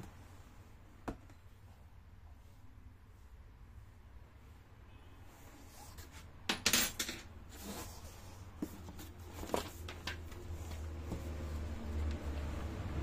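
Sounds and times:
cardboard and paper rustling: 7.5s - 11.8s.

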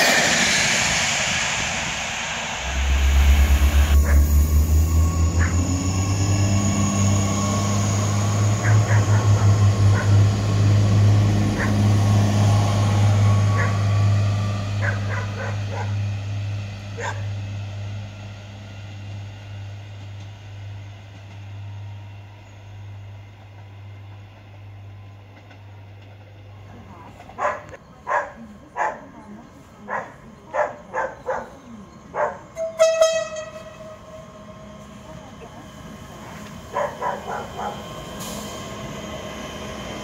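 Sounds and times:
diesel train passing: 0.0s - 40.0s
dog barking: 8.6s - 10.2s, 11.6s - 11.8s, 14.8s - 16.0s, 17.0s - 17.3s, 27.4s - 29.1s, 29.9s - 32.5s, 36.7s - 37.8s.

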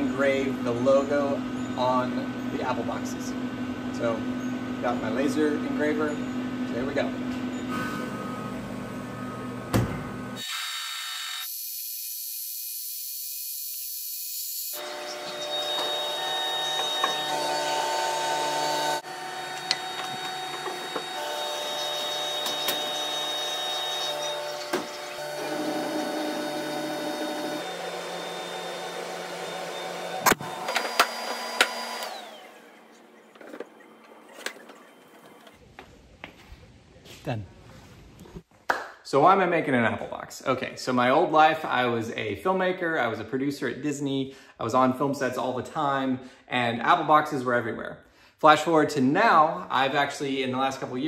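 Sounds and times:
laser engraver humming: 10.5s - 35.6s.

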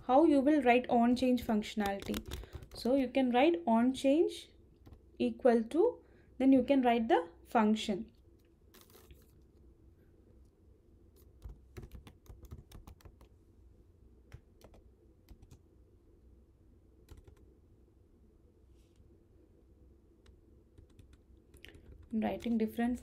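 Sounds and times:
faint low hum: 0.0s - 23.0s
computer keyboard typing: 1.4s - 3.0s, 11.2s - 13.3s, 14.3s - 15.6s, 17.0s - 17.5s, 20.2s - 22.8s.

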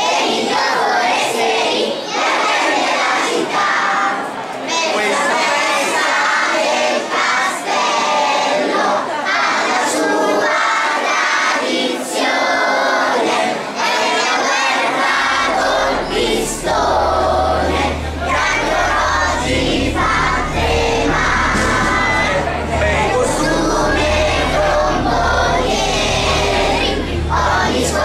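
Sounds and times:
children and adults singing: 0.0s - 28.0s
low steady bass note: 15.3s - 28.0s.

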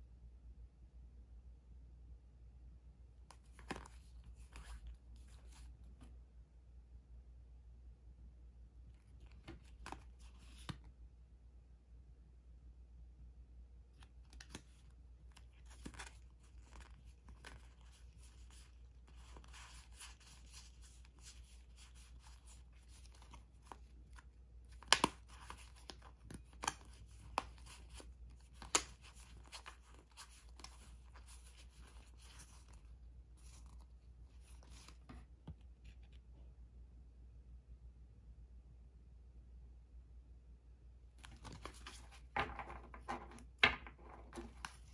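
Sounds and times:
playing cards sliding and rustling: 3.2s - 6.1s, 9.0s - 10.9s, 14.0s - 36.2s, 41.2s - 44.9s.

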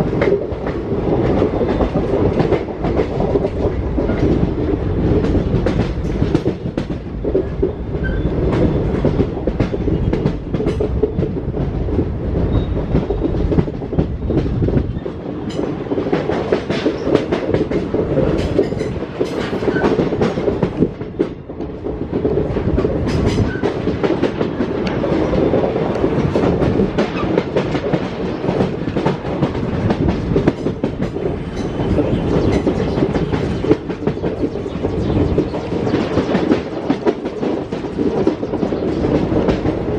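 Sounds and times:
wheels clacking over rail joints: 0.0s - 34.6s
train rumbling at speed: 0.0s - 39.9s.

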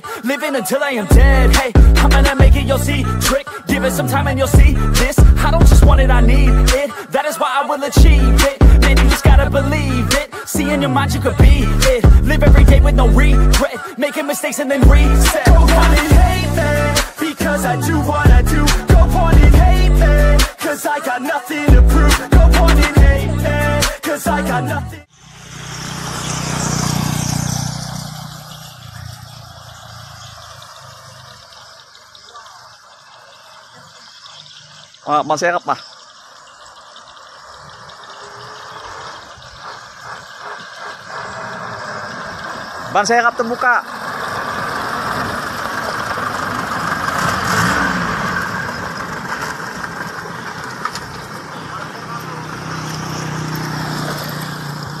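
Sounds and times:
vehicle driving past: 25.0s - 31.6s, 38.1s - 55.0s.

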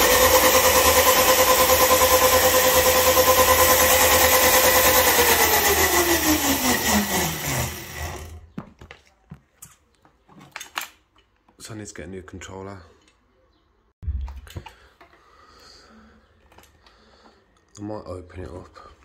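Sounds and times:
electric motor whine: 0.0s - 8.4s.

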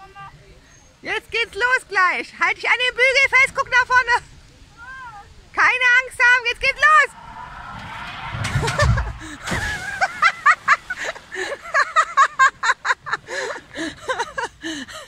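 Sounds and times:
boat rushing down water slide: 6.5s - 14.3s
boat splashing into pool: 7.3s - 12.8s
churning water: 8.3s - 14.6s.

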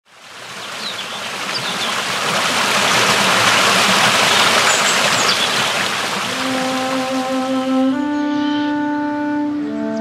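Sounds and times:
rushing water: 0.0s - 8.0s.

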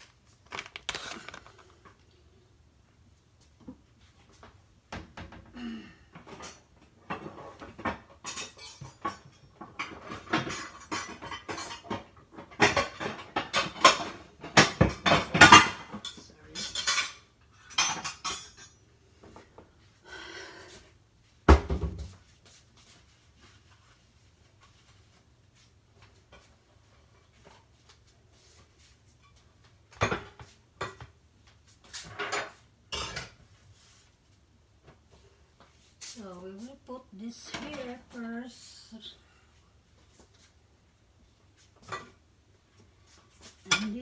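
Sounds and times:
dishes and utensils clinking: 6.2s - 18.9s, 31.9s - 33.5s, 41.8s - 42.2s, 43.4s - 44.0s.

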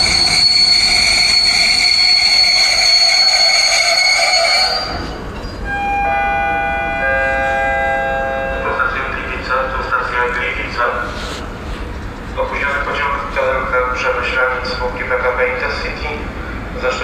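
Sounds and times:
train brakes squealing: 0.0s - 9.5s
public address announcement: 3.3s - 17.0s
electronic announcement chime: 5.7s - 9.7s.

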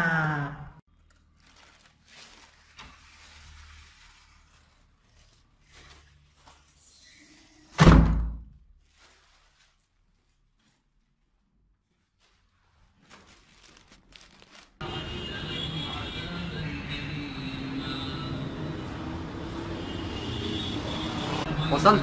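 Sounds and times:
door slamming shut: 7.8s - 8.5s.

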